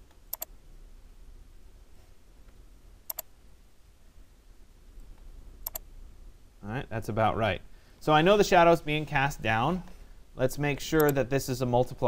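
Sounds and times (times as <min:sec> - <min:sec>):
faint low hum: 0:00.0 - 0:12.0
mouse button clicking: 0:03.1 - 0:03.3, 0:05.6 - 0:05.8.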